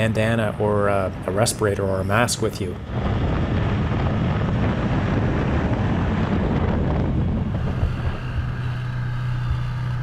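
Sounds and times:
low engine hum: 0:00.0 - 0:10.0
wind rushing over microphone: 0:00.0 - 0:10.0
atv engine running: 0:02.8 - 0:10.0.

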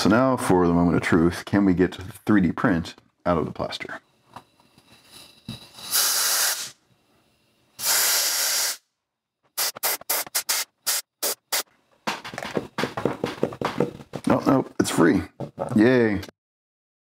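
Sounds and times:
compressed air blow gun hissing: 0:05.5 - 0:06.8, 0:07.8 - 0:08.8, 0:09.6 - 0:11.6.

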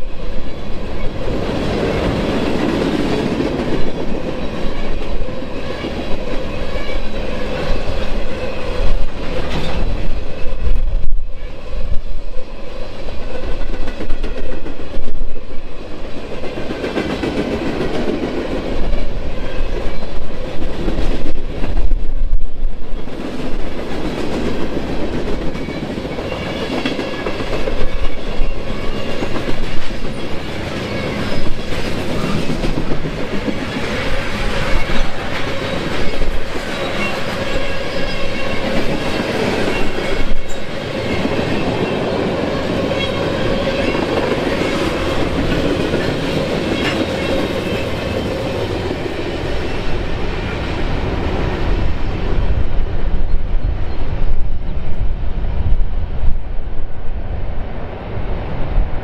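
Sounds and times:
train rumbling past: 0:00.0 - 0:59.0.

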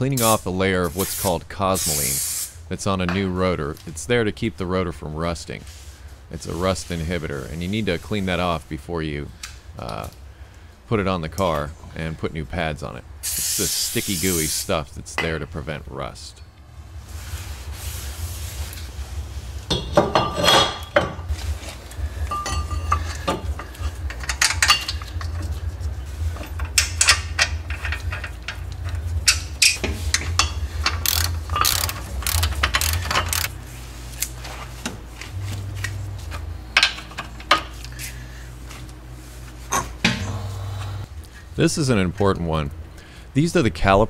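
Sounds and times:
low hum: 0:15.7 - 0:43.8
metal tools clinking: 0:19.7 - 0:21.2, 0:22.3 - 0:25.5, 0:26.4 - 0:33.5
socket ratchet clicking: 0:30.9 - 0:33.5.

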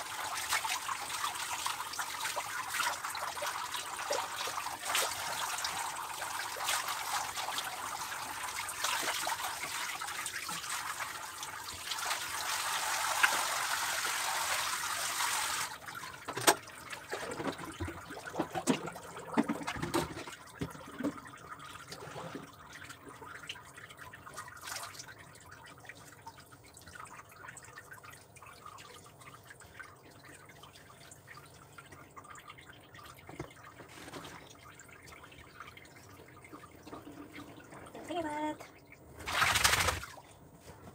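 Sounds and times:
water dripping and trickling: 0:00.0 - 0:40.8
sharp knocks and splashes: 0:39.2 - 0:40.2.

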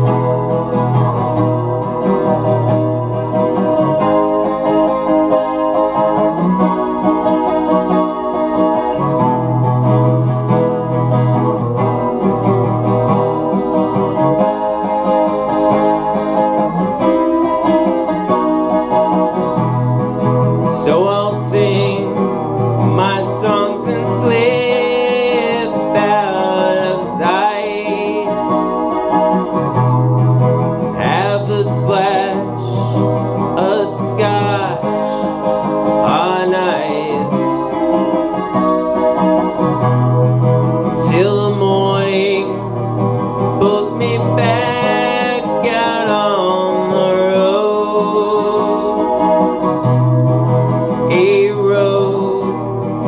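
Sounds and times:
acoustic guitar strumming: 0:00.0 - 0:53.0
man singing: 0:20.6 - 0:28.9, 0:30.8 - 0:37.9, 0:40.8 - 0:49.8, 0:51.0 - 0:53.0.

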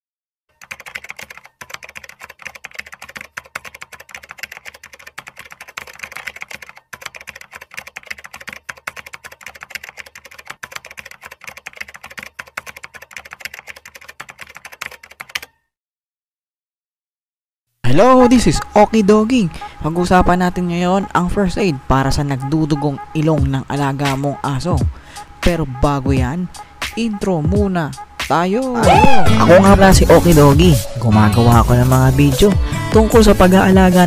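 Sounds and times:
keyboard typing clicks: 0:00.5 - 0:15.5.

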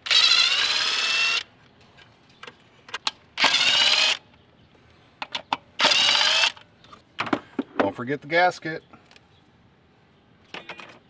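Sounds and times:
power ratchet motor whining: 0:00.0 - 0:01.5, 0:03.4 - 0:04.2, 0:05.8 - 0:06.6.

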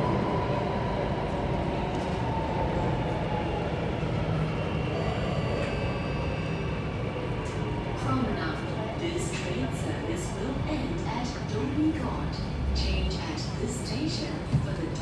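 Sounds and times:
metro train rumble: 0:00.0 - 0:15.0
faint whine sinking in pitch: 0:04.4 - 0:07.9.

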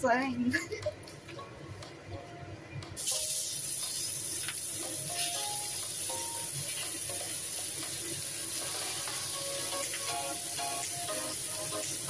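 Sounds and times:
food sizzling in hot oil: 0:03.0 - 0:12.0.

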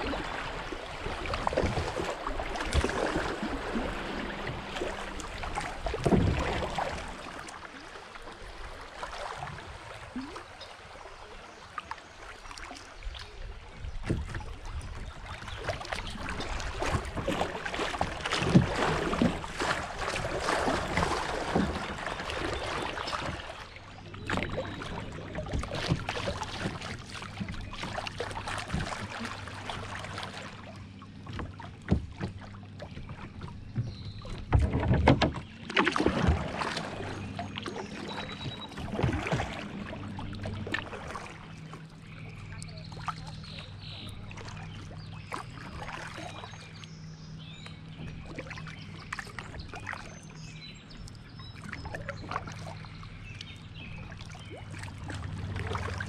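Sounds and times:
kayak paddle splashing: 0:00.0 - 0:56.0
water rushing along hull: 0:00.0 - 0:56.0.

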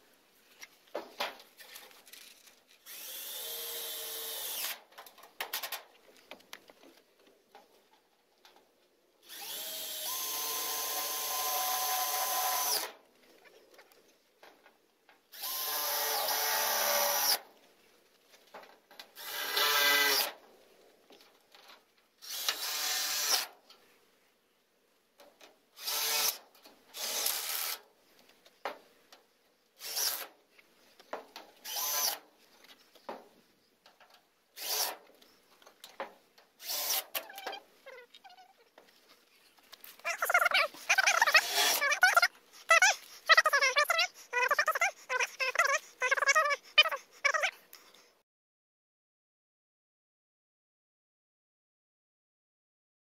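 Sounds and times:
cordless drill driving screws: 0:02.8 - 0:04.8, 0:09.2 - 0:12.9, 0:15.3 - 0:17.4, 0:19.2 - 0:20.3, 0:22.2 - 0:23.5, 0:25.8 - 0:26.4, 0:27.0 - 0:27.8, 0:29.8 - 0:30.3, 0:31.6 - 0:32.2, 0:34.6 - 0:35.0, 0:36.6 - 0:37.5, 0:40.8 - 0:42.2.

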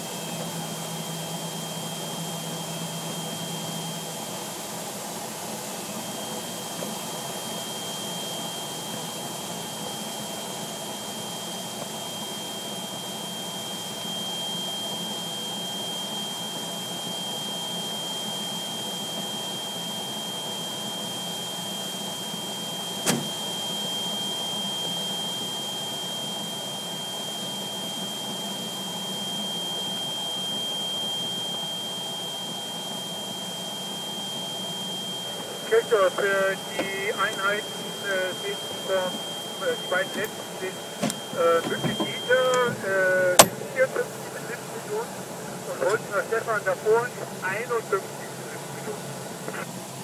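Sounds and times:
high-pitched tone: 0:33.7 - 0:44.9.

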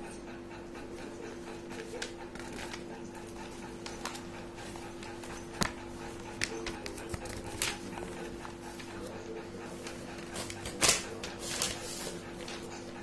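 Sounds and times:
steady low hum: 0:00.0 - 0:13.0
paper snapping and rustling: 0:06.4 - 0:07.8, 0:10.4 - 0:11.8.

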